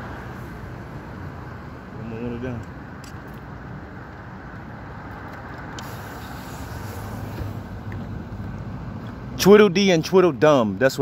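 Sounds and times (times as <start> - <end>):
road vehicles rumbling: 0.0 - 11.0.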